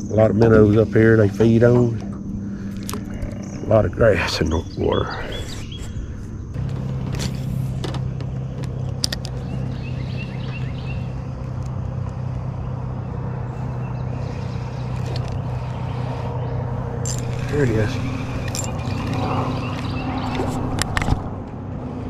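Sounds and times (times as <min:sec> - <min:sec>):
motor humming: 0:05.8 - 0:22.0.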